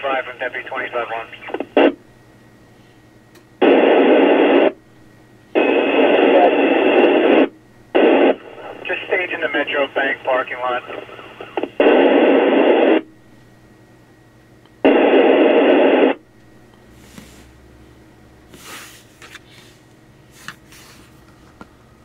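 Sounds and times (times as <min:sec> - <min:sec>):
radio static bursts: 0:00.0 - 0:02.0, 0:03.6 - 0:04.8, 0:05.6 - 0:13.0, 0:14.8 - 0:16.2
low speaker hum: 0:00.0 - 0:22.0.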